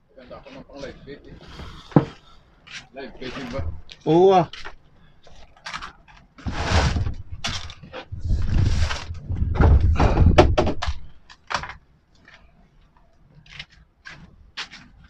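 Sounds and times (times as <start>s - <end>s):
fishing gear rustling and knocking: 1.4s - 15.0s
wind buffeting microphone: 7.1s - 11.2s.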